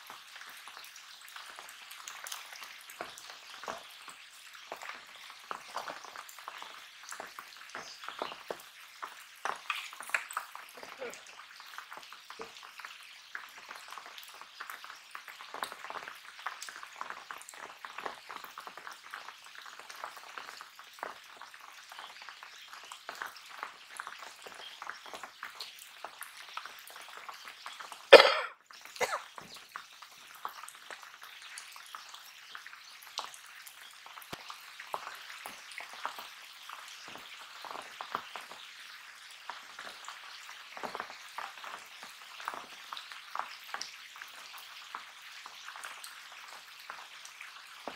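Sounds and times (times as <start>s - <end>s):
rain on water: 0.0s - 47.9s.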